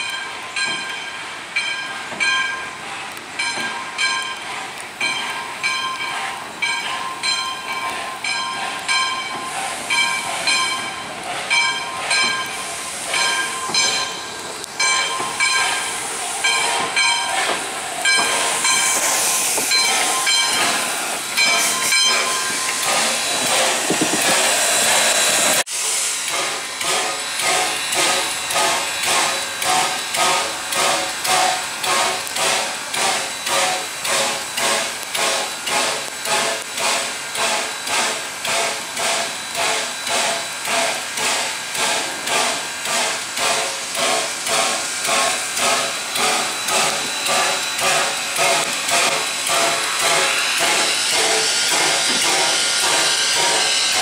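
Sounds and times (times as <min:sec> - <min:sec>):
steam hissing: 0:00.0 - 0:54.0
steam locomotive exhaust chuffs: 0:00.0 - 0:54.0.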